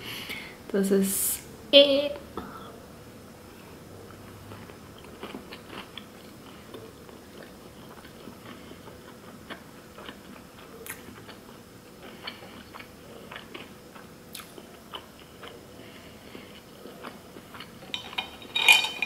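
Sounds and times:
chewing with wet mouth clicks: 4.5 - 15.6.

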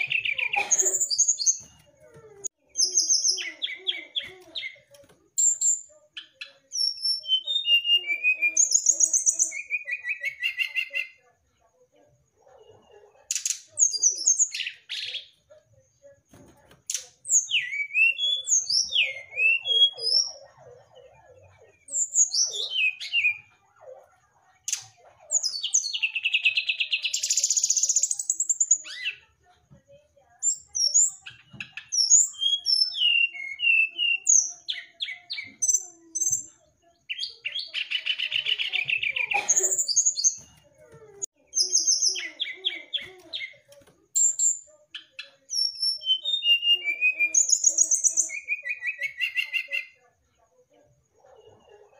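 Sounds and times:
bird whistled song: 5.4 - 11.2, 17.2 - 20.3, 30.4 - 36.5, 44.2 - 50.0.

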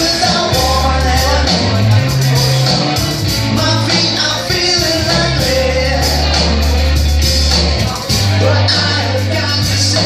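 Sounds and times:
electric guitar: 0.0 - 10.0
live rock band playing: 0.0 - 10.0
low bass line: 0.0 - 10.0.

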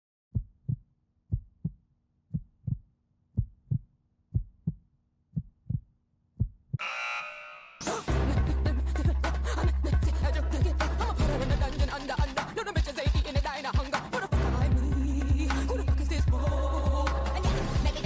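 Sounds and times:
heartbeat double thump: 0.3 - 4.8, 5.4 - 6.8
bright ringing burst: 6.8 - 7.9
loud music: 6.8 - 18.0.

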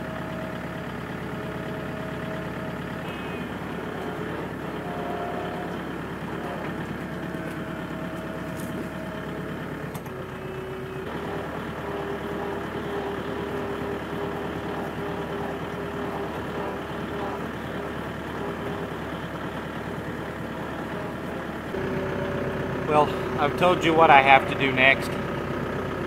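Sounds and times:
steady whine: 0.0 - 25.2
tractor diesel engine running: 0.0 - 26.0.

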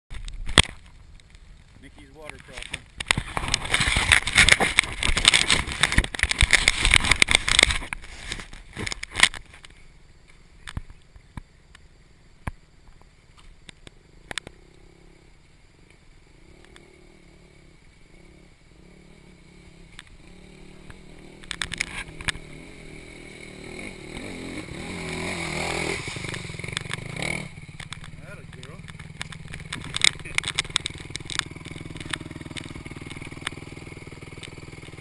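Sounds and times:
dirt bike engine: 0.1 - 35.0
bike splashing through water: 24.0 - 27.6.

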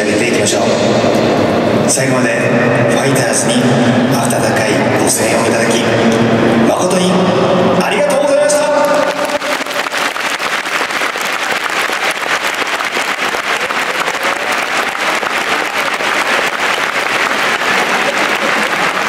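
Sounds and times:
stadium crowd applauding: 8.8 - 19.0.

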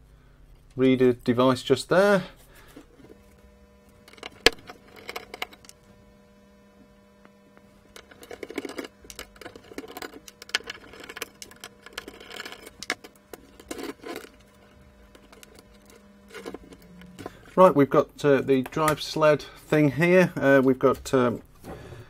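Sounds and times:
small clicks and scrapes: 2.6 - 5.9, 7.2 - 17.5
screwdriver undoing screws: 7.9 - 17.3.

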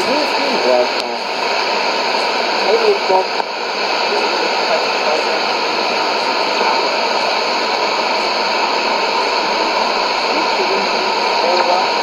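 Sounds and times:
shortwave radio static and hiss: 0.0 - 12.0.

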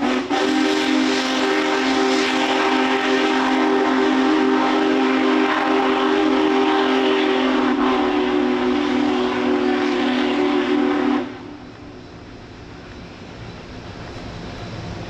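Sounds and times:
locomotive whistle blast: 0.0 - 11.7
train rolling across steel bridge: 0.0 - 15.0.

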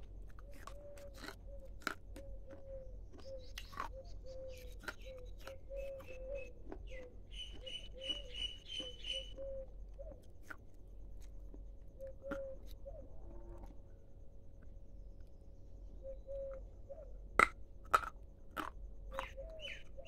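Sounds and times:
high bird chirps: 3.2 - 10.2, 19.1 - 20.0.

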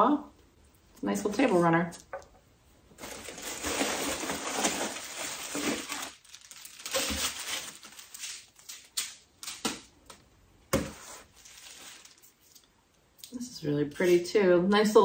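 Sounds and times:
plastic bag crinkling and rustling: 2.9 - 9.9, 11.0 - 12.7.

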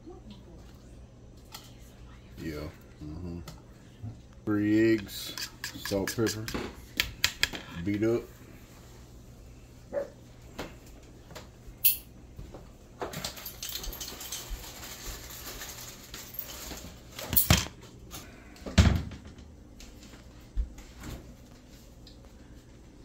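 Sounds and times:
fork scraping a bowl: 5.2 - 6.5.

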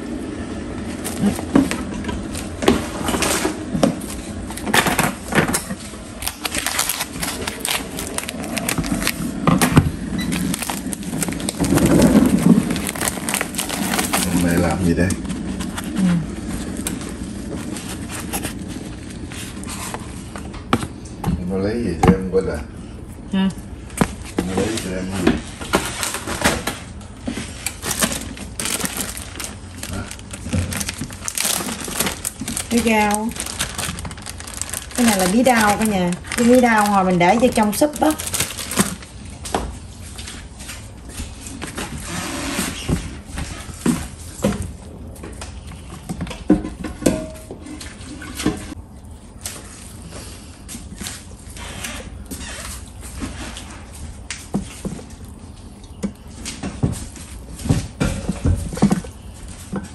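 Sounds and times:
plastic packaging crinkling: 0.9 - 20.4, 24.0 - 43.0.

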